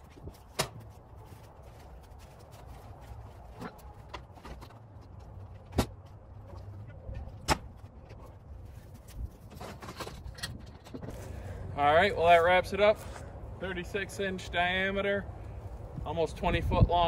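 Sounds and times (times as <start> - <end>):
wooden logs knocking and thumping: 0.0 - 1.2, 3.0 - 8.3.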